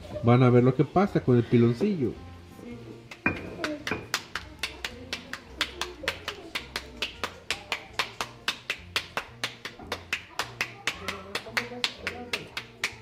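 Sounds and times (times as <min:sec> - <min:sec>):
music with fast percussive beat: 0:03.0 - 0:13.0.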